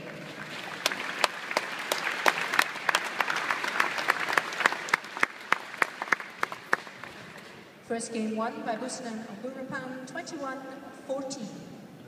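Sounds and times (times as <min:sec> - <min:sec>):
crowd applauding: 0:00.0 - 0:07.4
sharp claps close by: 0:00.8 - 0:07.2.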